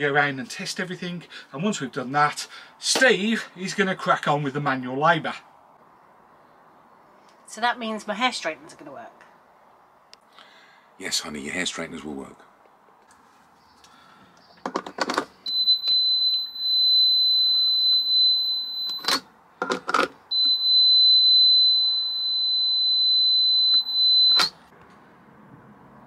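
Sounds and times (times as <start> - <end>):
plastic clicks and knocks: 14.4 - 15.3, 19.6 - 20.2
socket tester high beep: 15.5 - 19.2, 20.3 - 24.6.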